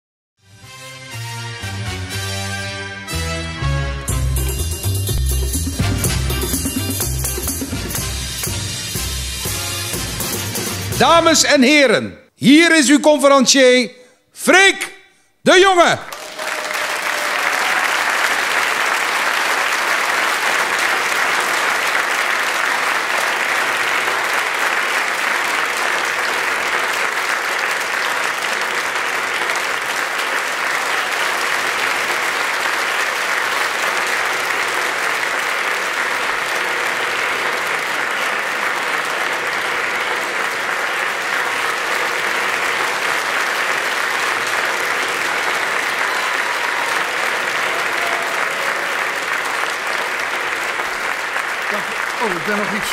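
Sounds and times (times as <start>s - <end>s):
large audience applauding: 15.7s - 52.9s.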